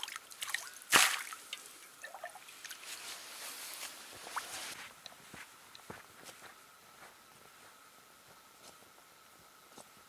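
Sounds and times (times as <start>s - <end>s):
water splash: 0.0s - 2.8s.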